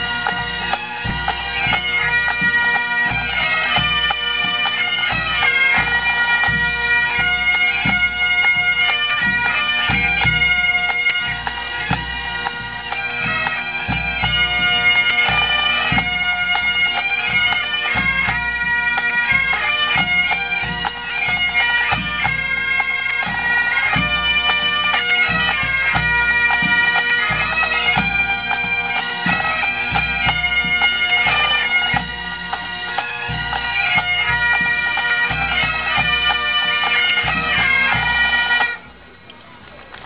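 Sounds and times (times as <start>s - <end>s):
bagpipes playing a tune: 0.0s - 39.0s.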